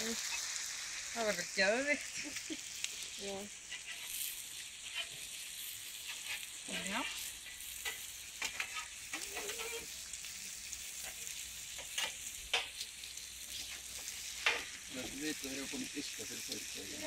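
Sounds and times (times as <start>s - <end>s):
food sizzling on a griddle: 0.0s - 17.0s
metal spatula clicks and scrapes: 6.0s - 9.9s, 11.8s - 12.8s.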